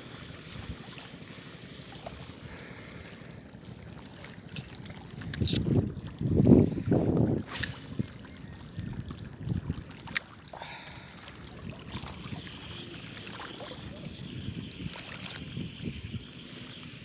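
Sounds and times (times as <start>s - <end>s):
small waves lapping on rocks: 0.0s - 17.0s
wind on microphone: 5.2s - 9.9s, 11.7s - 17.0s.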